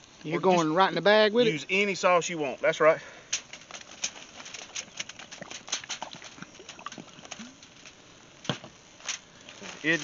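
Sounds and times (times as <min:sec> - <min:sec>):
plastic bag crinkling: 0:03.4 - 0:10.0.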